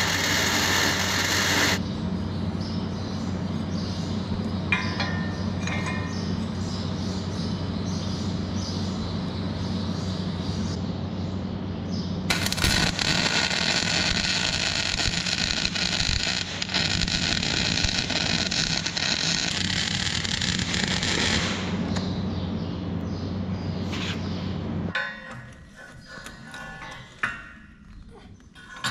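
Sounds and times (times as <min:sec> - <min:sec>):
welder crackling sizzle: 0:00.0 - 0:01.8, 0:12.3 - 0:22.0
steady low hum: 0:00.0 - 0:28.9.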